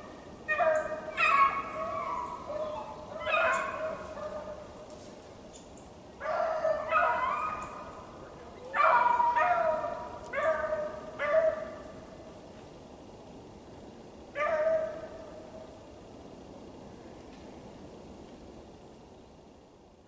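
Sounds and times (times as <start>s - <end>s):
dogs baying and howling: 0.5s - 4.7s, 6.2s - 11.9s, 14.4s - 15.2s.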